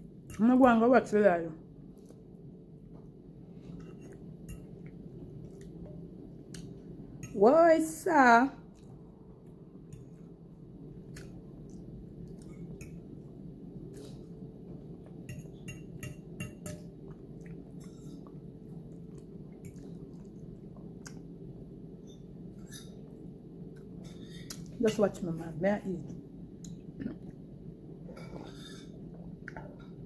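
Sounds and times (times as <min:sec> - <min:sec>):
low background hum: 0:00.0 - 0:30.0
person chewing food: 0:03.6 - 0:06.9, 0:11.0 - 0:15.7, 0:16.9 - 0:23.1.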